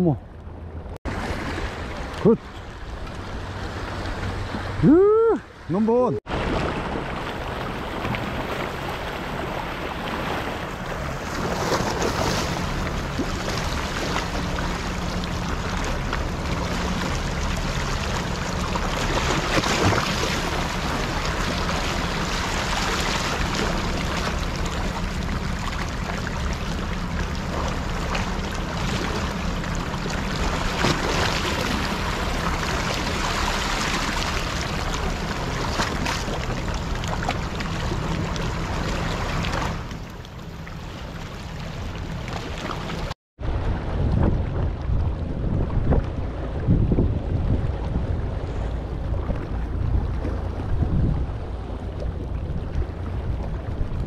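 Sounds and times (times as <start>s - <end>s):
waves washing over rocks: 1.1s - 39.9s
low steady hum: 6.4s - 54.0s
wind buffeting microphone: 43.4s - 54.0s.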